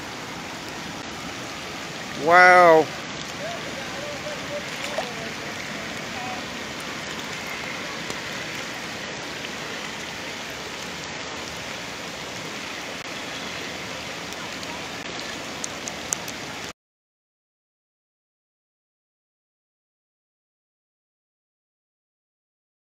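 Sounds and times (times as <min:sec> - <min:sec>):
rain falling on standing water: 0:00.0 - 0:16.7.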